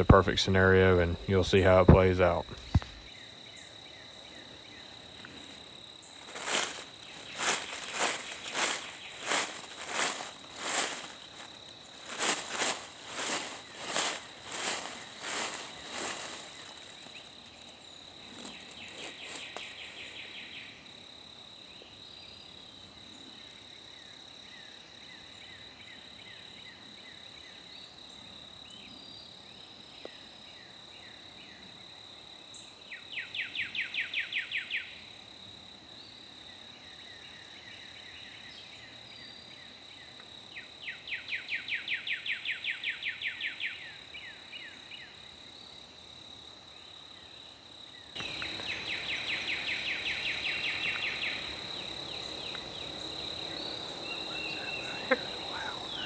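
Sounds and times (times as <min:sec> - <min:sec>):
bird chirps: 0:53.5 - 0:56.0.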